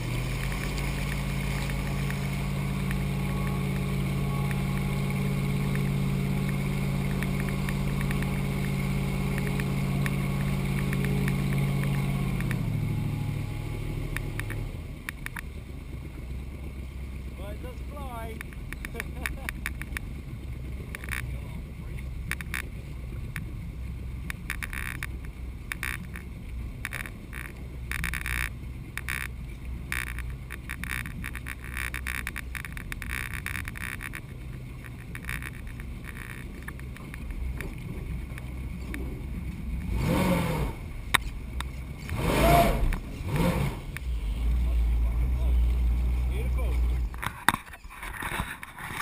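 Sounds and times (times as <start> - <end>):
engine revving: 0.0 - 47.3
boat engine idling: 0.0 - 49.0
water lapping against hull: 0.0 - 49.0.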